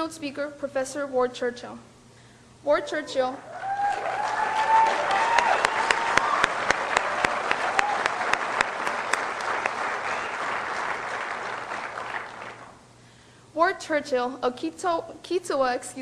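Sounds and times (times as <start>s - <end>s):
person cheering: 3.4s - 8.4s
audience applauding: 3.5s - 12.8s.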